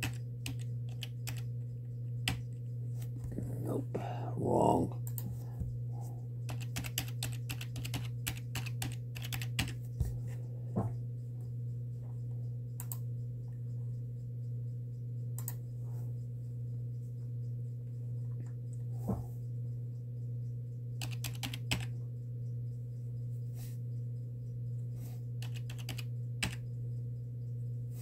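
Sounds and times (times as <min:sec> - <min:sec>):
computer keyboard typing: 0:00.0 - 0:02.6, 0:06.5 - 0:09.8, 0:21.0 - 0:22.0, 0:25.4 - 0:26.6
steady low hum: 0:00.0 - 0:28.0.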